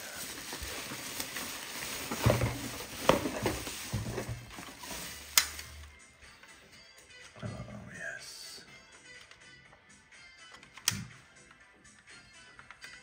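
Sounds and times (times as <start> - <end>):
plastic packaging crinkling: 0.0 - 5.8.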